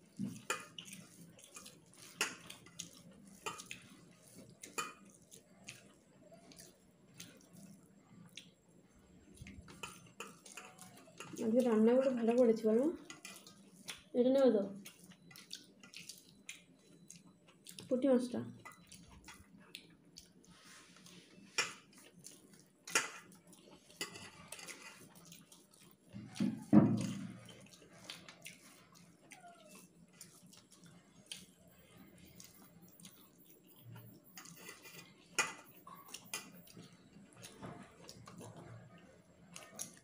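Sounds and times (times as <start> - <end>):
fingers mixing rice on steel plate: 0.2 - 7.4, 9.4 - 14.1, 32.2 - 36.9.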